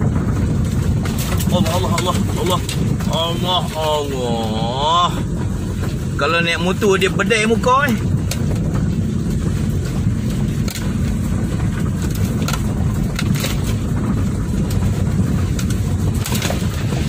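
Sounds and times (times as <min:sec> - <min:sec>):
car jolting knocks and scrapes: 0:00.0 - 0:04.4, 0:08.0 - 0:17.0
engine and tyre rumble: 0:00.0 - 0:17.0.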